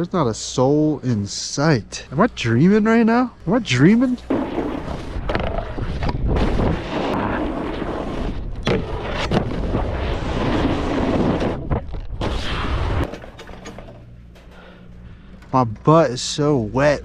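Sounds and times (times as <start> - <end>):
snowboard scraping icy snow: 4.3 - 11.6
wind buffeting microphone: 4.8 - 12.2.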